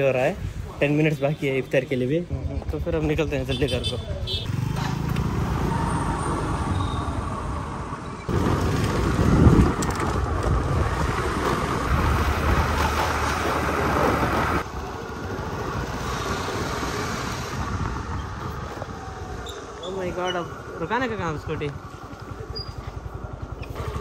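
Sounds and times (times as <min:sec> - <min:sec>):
scooter engine and road noise: 0:02.3 - 0:24.0
wind rushing over microphone: 0:08.2 - 0:19.8.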